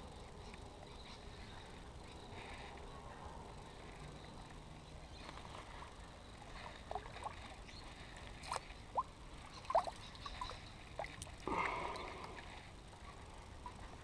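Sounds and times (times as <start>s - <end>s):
water lapping against kayak hull: 5.6s - 14.0s
water slosh: 6.4s - 12.7s
small water plops: 6.7s - 12.5s.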